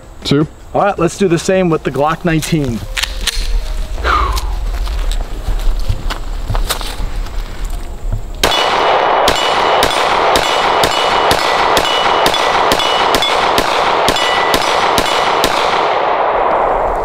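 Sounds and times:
steel target ringing: 8.4 - 15.5
pistol shots: 8.4 - 16.8.

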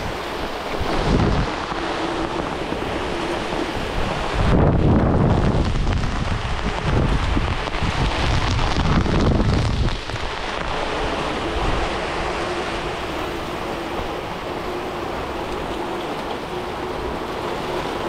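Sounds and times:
heavy rain pouring: 0.0 - 18.0
wind buffeting microphone: 0.0 - 18.0.

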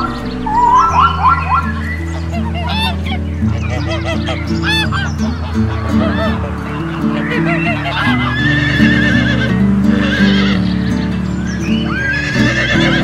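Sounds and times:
background music: 0.0 - 13.0
horse whinnying: 8.1 - 10.6, 11.9 - 13.0.

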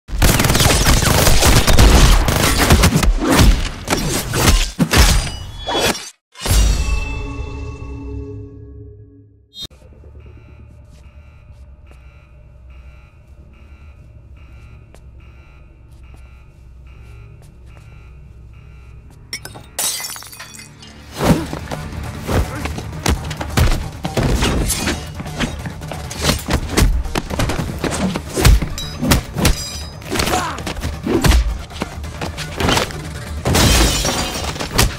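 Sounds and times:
glass bottle smashing: 19.4 - 21.0
music: 20.4 - 34.9.

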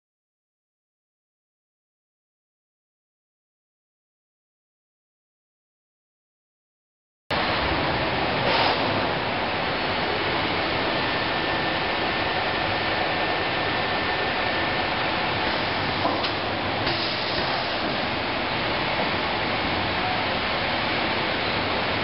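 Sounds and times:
conveyor belts hissing: 7.4 - 22.0.

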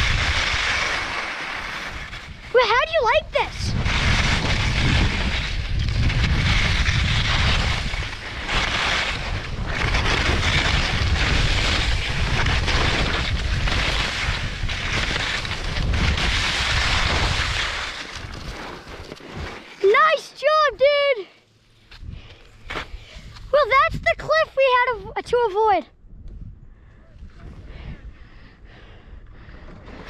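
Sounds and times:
wind rumble on microphone: 0.0 - 0.8, 3.2 - 19.4, 25.9 - 30.0
skis scraping over snow: 0.0 - 20.2.

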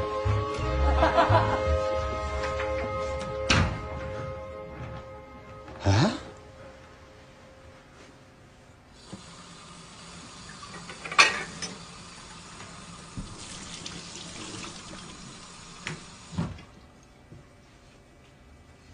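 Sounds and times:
tap running water into sink: 10.3 - 16.6.

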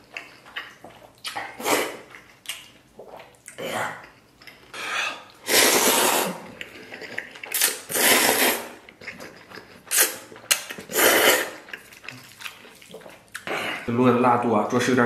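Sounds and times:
person slurping noodles: 1.3 - 2.2, 4.7 - 13.9.

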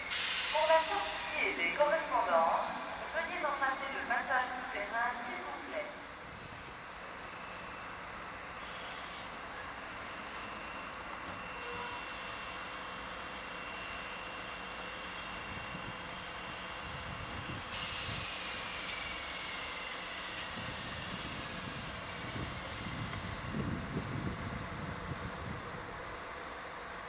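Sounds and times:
hiss: 0.0 - 2.8, 8.6 - 9.4, 14.4 - 23.5
electric train whine: 0.0 - 27.0.

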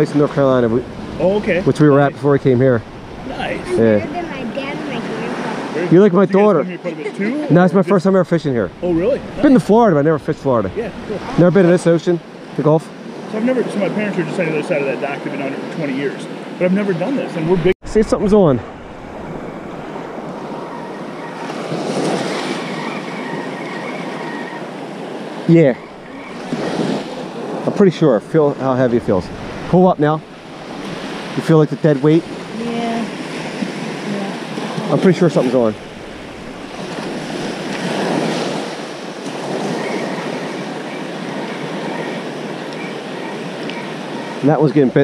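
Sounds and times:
wind on microphone: 0.0 - 5.8, 17.5 - 27.7, 28.9 - 31.4
surf washing onto beach: 0.0 - 23.5, 24.1 - 45.0.

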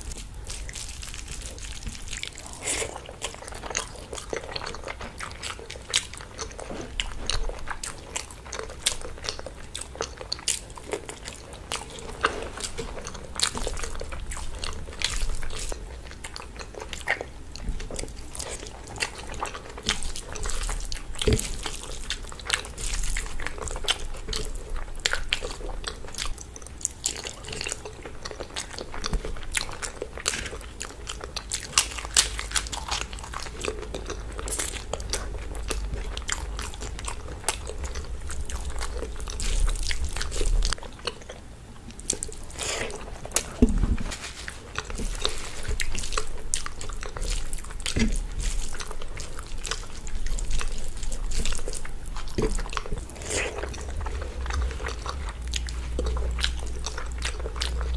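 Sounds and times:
chewing close to microphone: 0.0 - 57.9.

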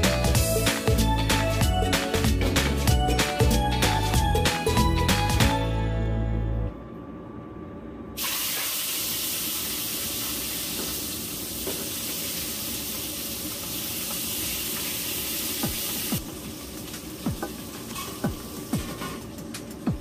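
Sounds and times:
fish frying in hot wok: 8.2 - 20.0.

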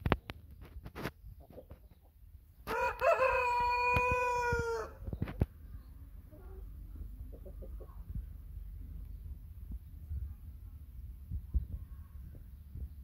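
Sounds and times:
rooster crowing: 2.7 - 5.0.

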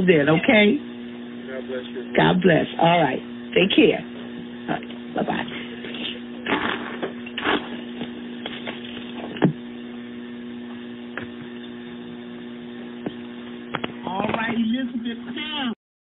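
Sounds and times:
electrical mains hum: 0.0 - 15.8.

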